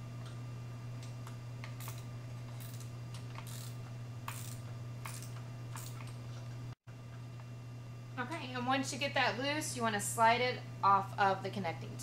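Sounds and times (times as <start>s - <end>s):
steady low hum: 0.0s - 12.0s
socket ratchet clicking: 2.6s - 6.0s.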